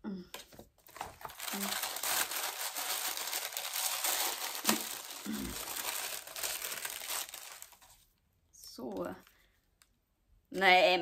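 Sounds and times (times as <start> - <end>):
packaging wrap crinkling: 0.5 - 8.0.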